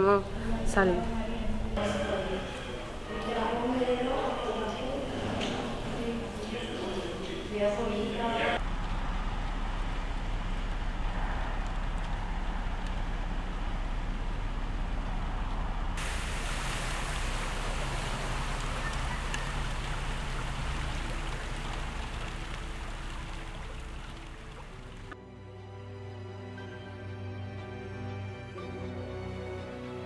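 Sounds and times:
steady rain: 8.5 - 25.2
floodwater rushing across street: 16.0 - 25.2.

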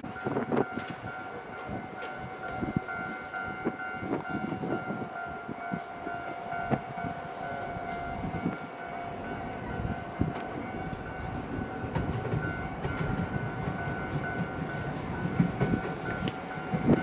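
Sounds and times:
low rail rumble: 0.0 - 17.0
scattered knocks: 11.9 - 17.0.

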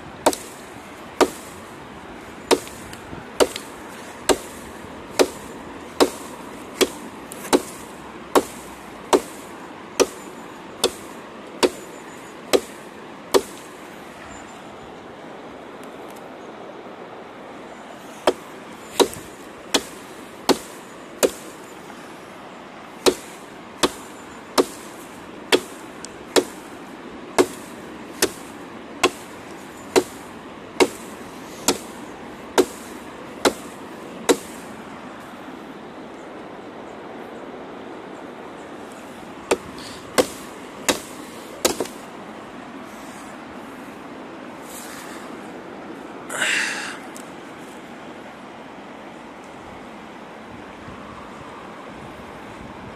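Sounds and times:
river water rushing: 0.0 - 52.9
knife chopping into log: 0.2 - 0.5, 1.2 - 1.5, 2.5 - 2.8, 3.4 - 3.7, 5.2 - 5.4, 6.0 - 7.8, 8.4 - 9.4, 13.4 - 13.6, 18.2 - 18.4, 19.0 - 19.2, 19.8 - 21.5, 23.0 - 24.9, 26.4 - 26.6, 27.4 - 27.6, 28.2 - 28.4, 29.0 - 29.3, 30.0 - 30.2, 32.6 - 32.8, 33.4 - 33.7, 34.3 - 34.5, 39.5 - 42.0.

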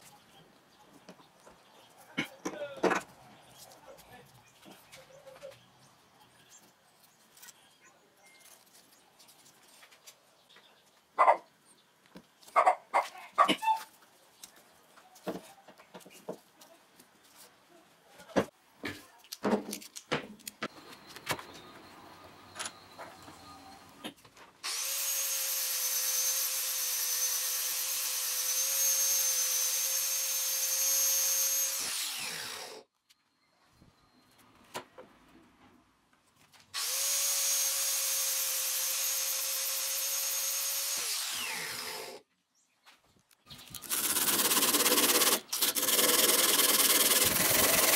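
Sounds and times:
angle grinder running: 24.6 - 32.8, 36.8 - 42.2, 43.8 - 47.9.

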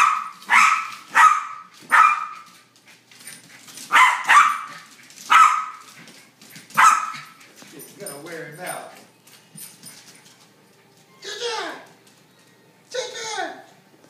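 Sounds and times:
small dog barking: 0.0 - 2.5, 3.9 - 5.9, 6.8 - 7.4.

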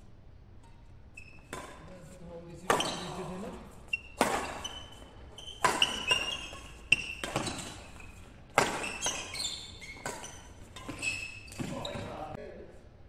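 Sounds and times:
shoes squeaking on court: 0.8 - 2.0, 2.6 - 12.4
rackets hitting shuttlecock: 1.4 - 2.0, 2.6 - 12.1.

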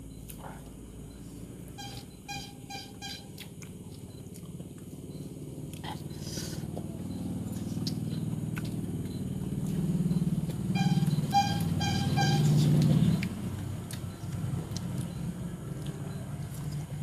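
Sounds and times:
vehicle engine running: 0.0 - 17.0
short beeps: 1.1 - 3.4, 10.1 - 13.2.

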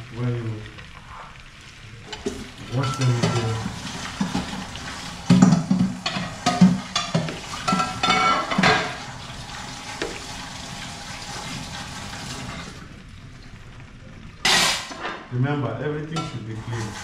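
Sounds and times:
onions sizzling in a pan: 0.0 - 15.0, 16.1 - 17.0
dishes and pots clattering: 2.1 - 9.1, 14.4 - 15.3, 16.2 - 16.9.

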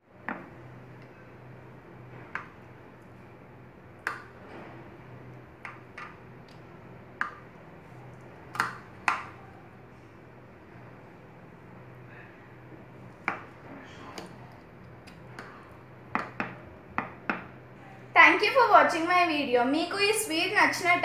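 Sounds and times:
low steady hum: 0.0 - 21.0.

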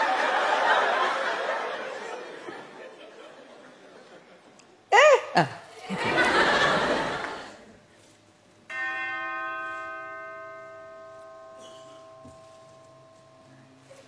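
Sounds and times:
audience noise: 5.4 - 7.7
bell ringing: 8.7 - 14.0.

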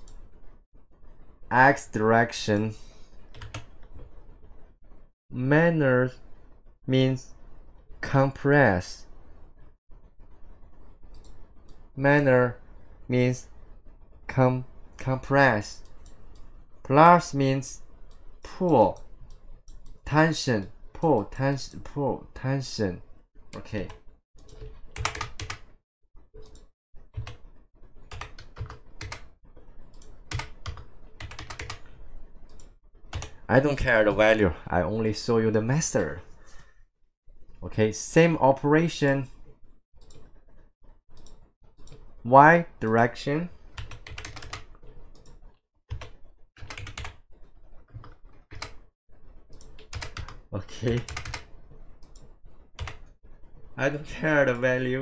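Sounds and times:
typing on computer keyboard: 3.3 - 4.1, 23.8 - 25.6, 26.4 - 27.4, 28.0 - 29.3, 29.9 - 31.9, 32.5 - 33.4, 43.8 - 47.2, 47.9 - 48.9, 49.5 - 53.1.

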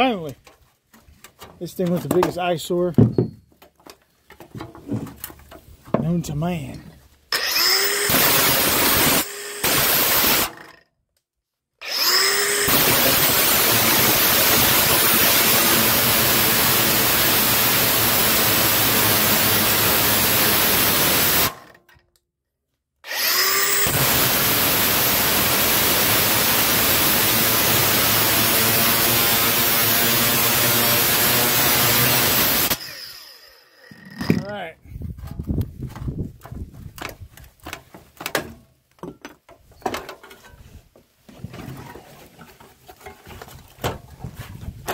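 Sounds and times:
angle grinder cutting steel: 7.3 - 10.8, 11.8 - 21.7, 23.0 - 34.4.

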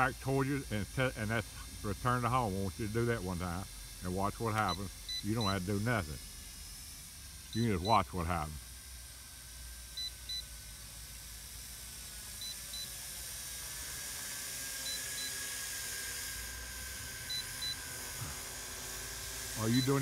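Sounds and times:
drone propellers humming: 0.0 - 8.8, 11.2 - 20.0
controller short high beeps: 19.6 - 20.0.

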